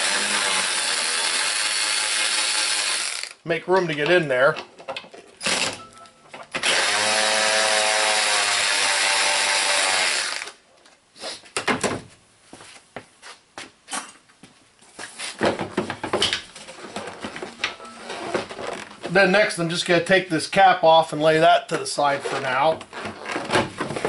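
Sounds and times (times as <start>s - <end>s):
cordless power ratchet running: 0.0s - 3.4s.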